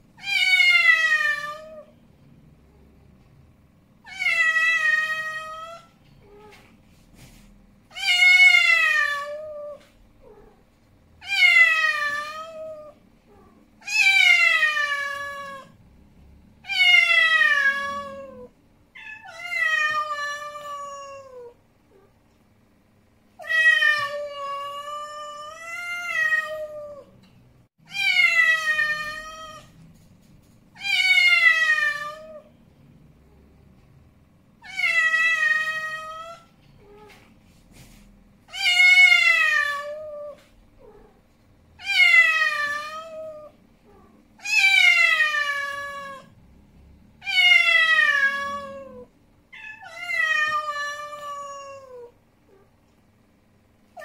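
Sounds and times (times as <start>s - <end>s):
cat yowling: 47.2s - 52.2s.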